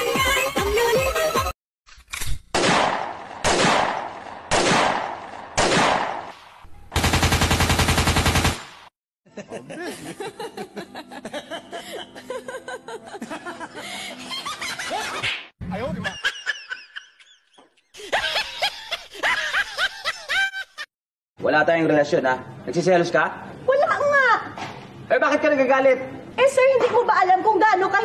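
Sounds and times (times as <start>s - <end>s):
loud single gunshots: 2.5s - 6.4s
machine-gun burst: 7.0s - 8.9s.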